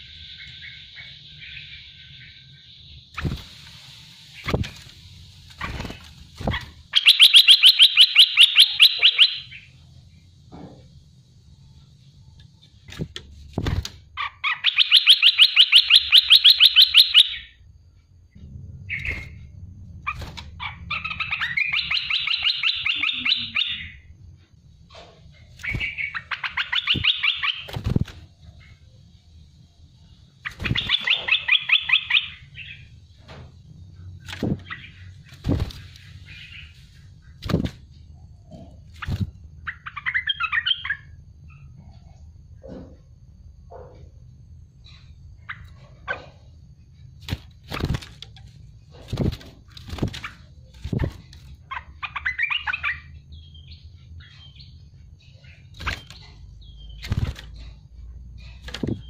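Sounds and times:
bird calling in harsh trills: 0:06.5 - 0:09.7, 0:14.2 - 0:17.6, 0:20.1 - 0:24.1, 0:25.6 - 0:27.8, 0:30.4 - 0:32.9.

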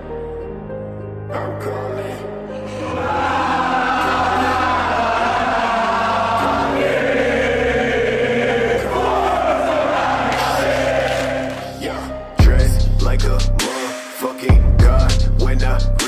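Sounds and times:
background music with bass: 0:00.0 - 0:16.0
crowd singing a chant: 0:02.7 - 0:12.6.

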